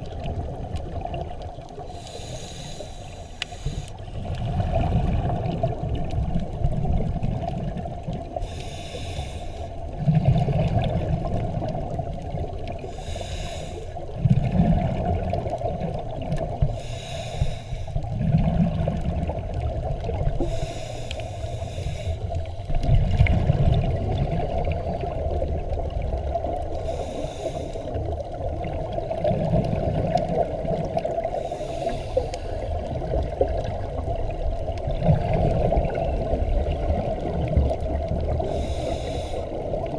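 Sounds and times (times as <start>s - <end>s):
low rumble of water: 0.0s - 39.9s
diver exhaling bubbles: 32.1s - 38.8s.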